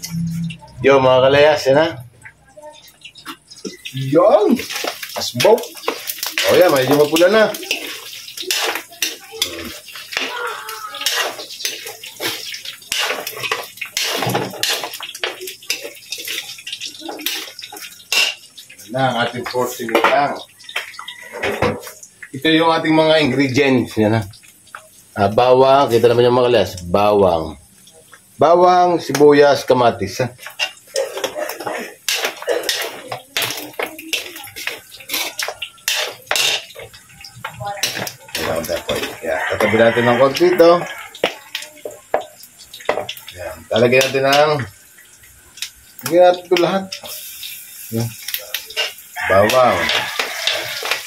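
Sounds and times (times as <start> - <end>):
meat sizzling: 0.0 - 51.0
metal spatula scraping a wok: 4.7 - 10.3, 11.0 - 16.6, 17.2 - 18.5, 30.4 - 37.0, 48.7 - 51.0.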